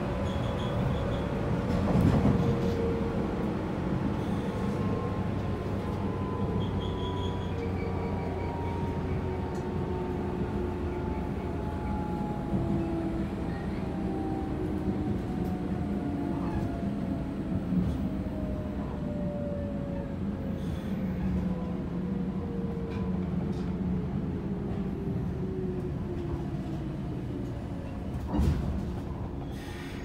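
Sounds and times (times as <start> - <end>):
train running rumble: 0.0 - 30.0
train clunk: 26.1 - 30.0.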